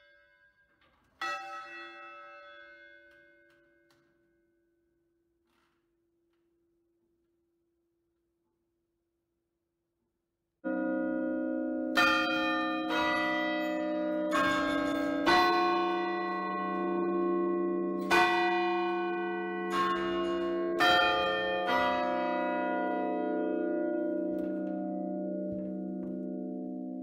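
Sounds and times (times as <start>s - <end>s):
church bells chiming: 0.0s - 4.6s, 10.6s - 27.0s.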